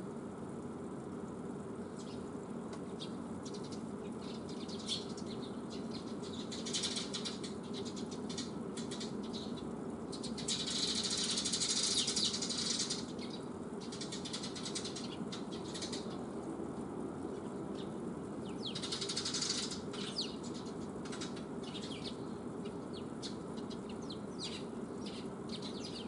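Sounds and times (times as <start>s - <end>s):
low background rumble: 0.0s - 26.0s
sparrows fluttering wings: 1.7s - 26.0s
rapid wingbeats flurry: 10.2s - 26.0s.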